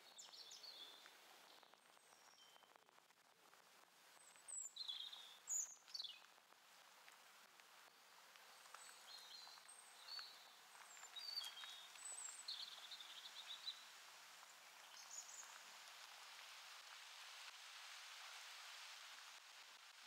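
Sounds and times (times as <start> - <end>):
songbirds chirping and trilling: 0.0 - 2.8, 4.2 - 6.4, 8.4 - 13.9
wind in trees: 0.0 - 20.0.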